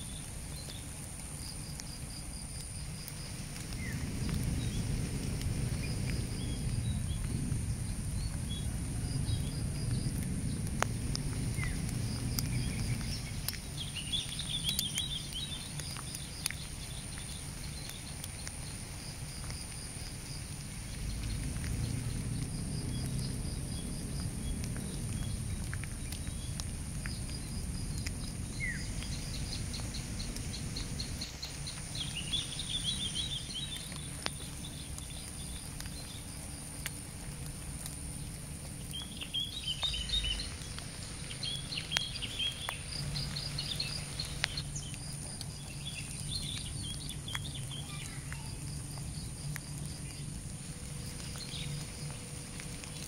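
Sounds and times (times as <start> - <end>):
faint ticks: 0.5 - 7.4, 9.3 - 53.0
low rumble: 2.8 - 15.8, 20.6 - 47.7
birds chirping: 11.5 - 18.8, 20.8 - 36.4, 38.2 - 53.0.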